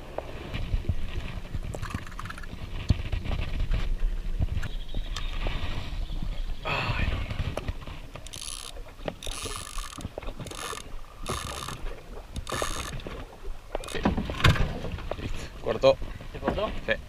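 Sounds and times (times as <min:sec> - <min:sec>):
fishing reel being cranked: 0:01.8 - 0:02.5, 0:08.2 - 0:13.1, 0:13.8 - 0:14.0.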